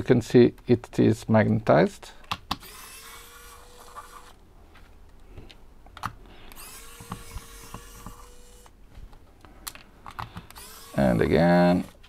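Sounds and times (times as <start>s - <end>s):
electric screwdriver whirring: 2.6s - 4.4s, 6.5s - 8.7s, 10.4s - 12.0s.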